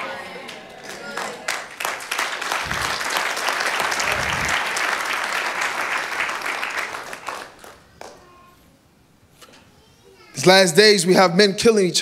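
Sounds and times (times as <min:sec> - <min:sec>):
congregation applauding: 0:00.4 - 0:08.2.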